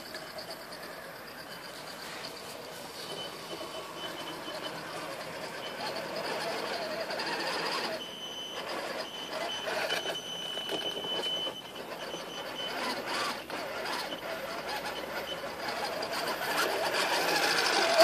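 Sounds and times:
thin high whine: 0:00.0 - 0:14.4
electric motor and gearbox whining: 0:00.0 - 0:18.0.

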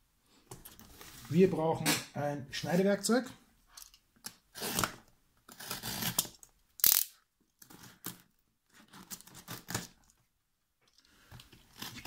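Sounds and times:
blade scraping through packing tape: 0:04.5 - 0:08.2.

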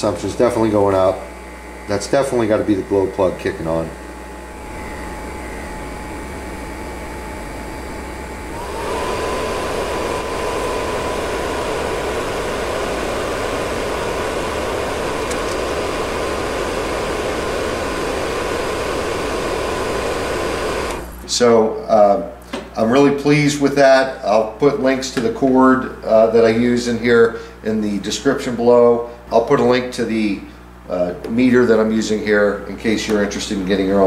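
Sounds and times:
heater blower fan whirring: 0:00.0 - 0:34.0.

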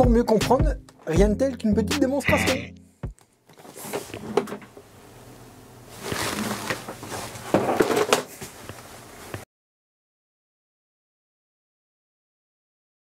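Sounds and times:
rustling and rummaging: 0:03.5 - 0:04.7, 0:05.9 - 0:09.4.

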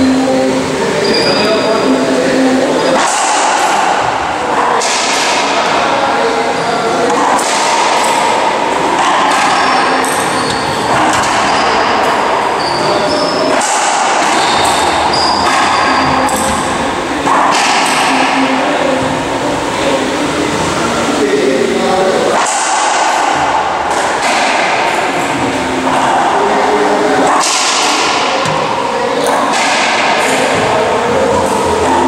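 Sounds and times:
echoing court noise: 0:00.0 - 0:32.0
racquetball hits: 0:02.9 - 0:05.9, 0:07.0 - 0:19.1, 0:22.4 - 0:26.2, 0:27.1 - 0:31.6.

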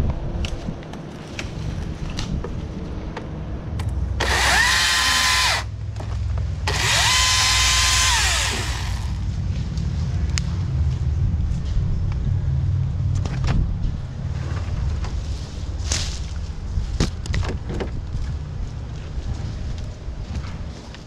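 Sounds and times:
low engine hum: 0:00.0 - 0:21.0
battery chainsaw cutting branches: 0:04.2 - 0:05.7, 0:06.7 - 0:09.3.

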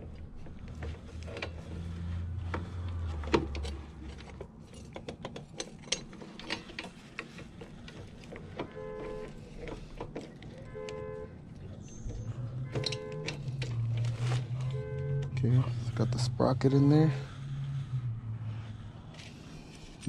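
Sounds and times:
small metal parts clinking: 0:03.6 - 0:10.8, 0:11.5 - 0:14.8
low hum: 0:10.4 - 0:20.0.

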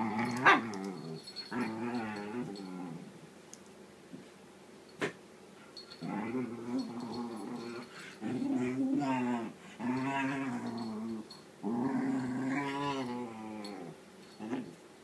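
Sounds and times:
dog moaning and grumbling: 0:00.0 - 0:03.2, 0:06.0 - 0:14.8.

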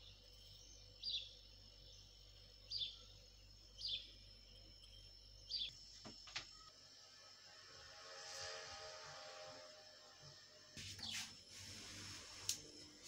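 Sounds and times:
faint bird chirping: 0:00.0 - 0:07.0, 0:10.2 - 0:13.0
low steady hum: 0:00.0 - 0:13.0.

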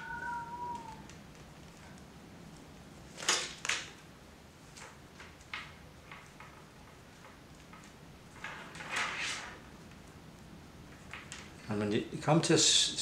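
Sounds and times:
willow rods rustling and scraping: 0:07.8 - 0:09.7.

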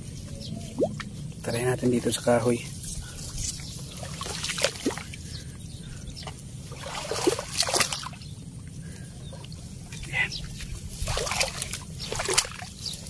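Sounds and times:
water splashes and drips: 0:00.7 - 0:01.5, 0:03.5 - 0:05.3, 0:06.2 - 0:08.7, 0:10.6 - 0:13.0
person wading through shallow water: 0:03.5 - 0:13.0.

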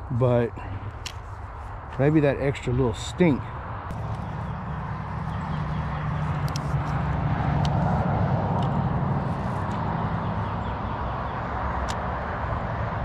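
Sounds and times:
motor vehicle engine passing: 0:03.8 - 0:13.0.

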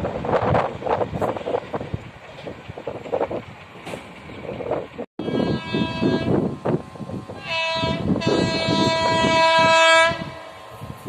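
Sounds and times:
locomotive horn blasts: 0:05.2 - 0:06.5, 0:07.3 - 0:10.8.

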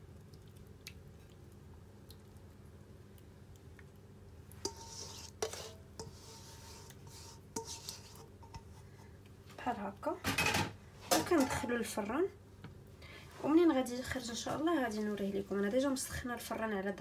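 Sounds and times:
wet squishing and dripping: 0:00.0 - 0:05.4.

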